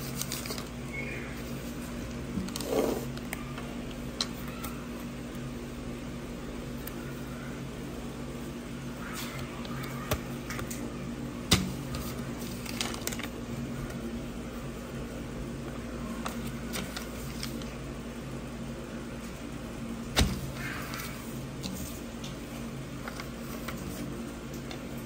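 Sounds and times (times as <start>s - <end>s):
paper cards rustling: 0.0s - 0.8s, 11.8s - 13.4s, 16.2s - 17.8s, 23.0s - 24.9s
steady low hum: 0.0s - 25.0s.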